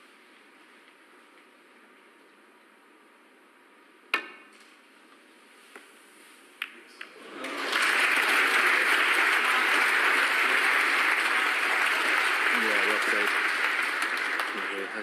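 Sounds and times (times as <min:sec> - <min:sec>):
audience applause: 0:07.2 - 0:15.0.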